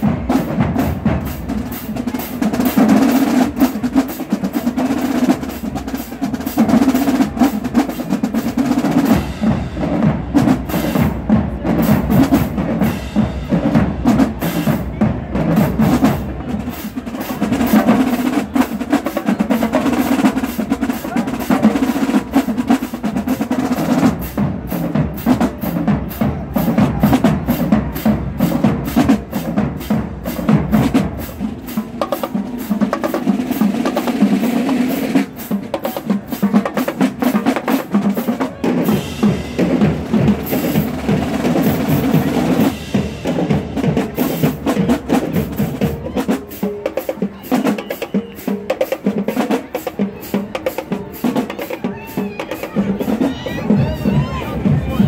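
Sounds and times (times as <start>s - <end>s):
snare drums: 0.0s - 55.0s
tenor drums: 0.0s - 55.0s
bass drums: 52.9s - 55.0s.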